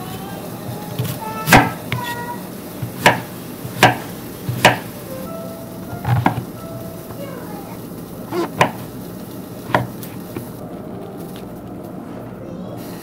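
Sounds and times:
knife hitting wooden cutting board: 2.8s - 4.9s, 8.3s - 8.8s.

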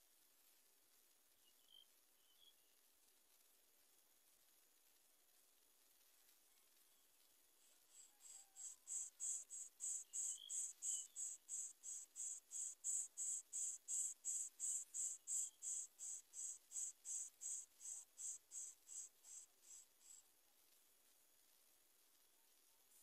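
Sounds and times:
nestlings begging: 8.6s - 20.2s.

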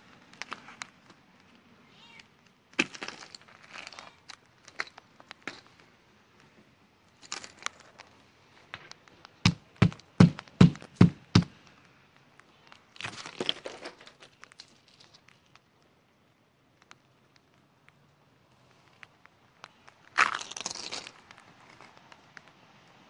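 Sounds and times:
ice crackling and crunching: 2.7s - 5.8s, 7.1s - 8.2s, 12.8s - 15.7s, 18.6s - 22.4s.

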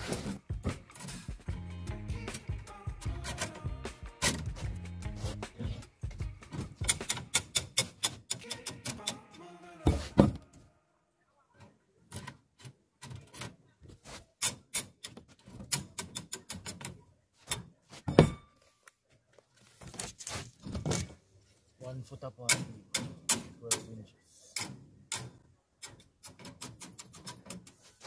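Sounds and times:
metallic clicks of rebar and wire: 6.8s - 9.4s, 14.4s - 17.8s, 22.4s - 28.0s.

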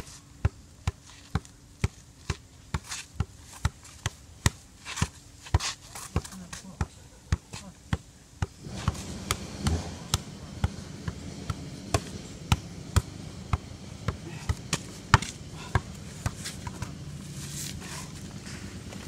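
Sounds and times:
ball bouncing on the ground: 0.4s - 17.0s
shoe tapping a ball: 0.4s - 17.0s.

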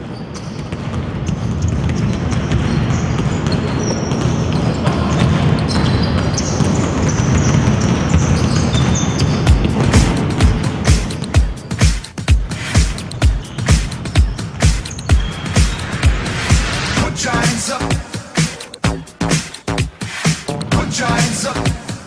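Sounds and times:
basketballs dribbling: 0.0s - 22.0s
bass-heavy music thumps: 9.3s - 22.0s.

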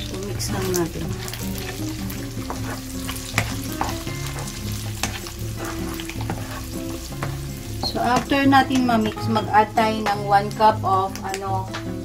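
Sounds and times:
food sizzling in frying pan: 0.0s - 12.0s.

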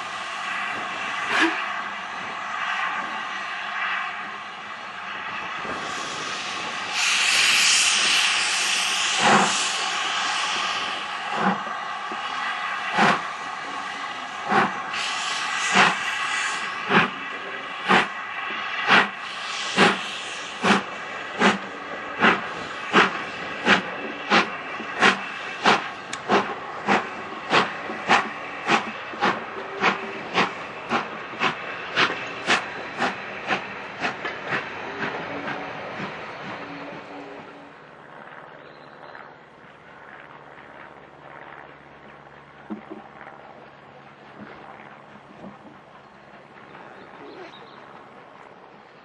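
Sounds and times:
steam hissing: 0.0s - 37.7s
steam locomotive exhaust chuffs: 0.0s - 37.9s.

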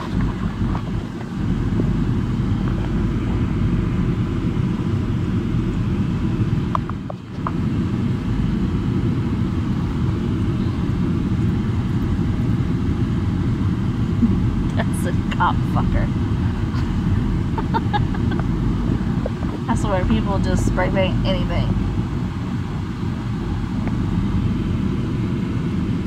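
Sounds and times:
car driving over gravel: 0.0s - 4.7s.

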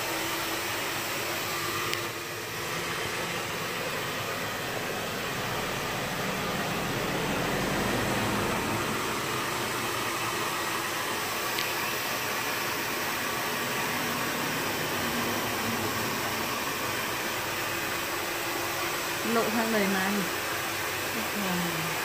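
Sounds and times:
rushing air hiss: 6.5s - 18.6s.

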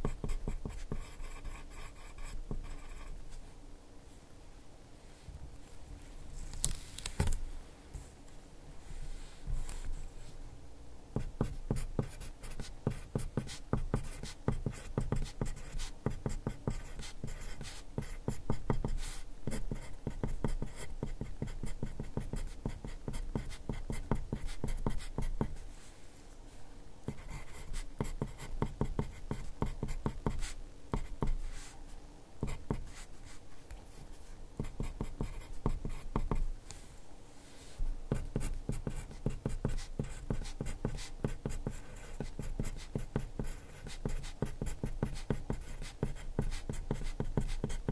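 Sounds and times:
pencil scratching on paper: 0.0s - 3.2s, 11.2s - 25.6s, 27.1s - 31.8s, 32.4s - 33.4s, 34.6s - 36.5s, 38.1s - 47.9s.

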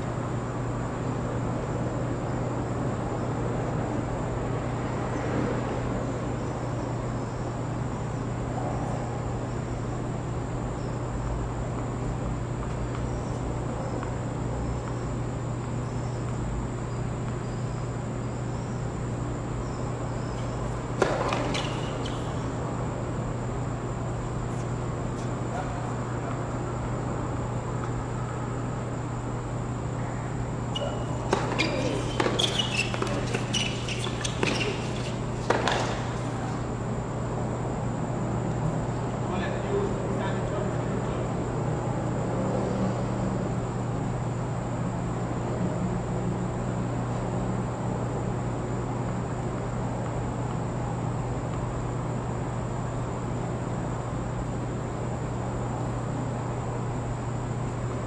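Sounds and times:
background hum: 0.0s - 58.0s
tennis ball impact: 20.6s - 22.4s, 30.8s - 36.7s.

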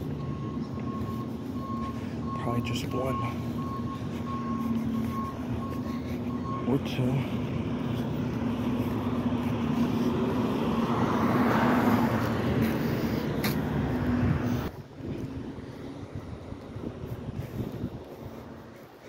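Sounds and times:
truck engine humming: 0.0s - 19.0s.

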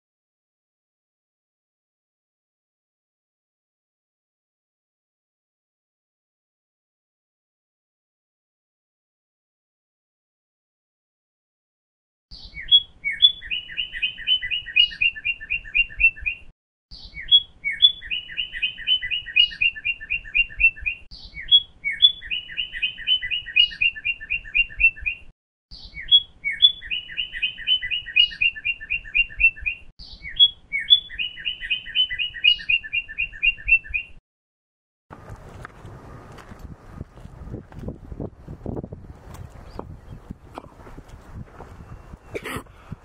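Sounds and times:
songbird singing a trill: 12.3s - 34.2s.

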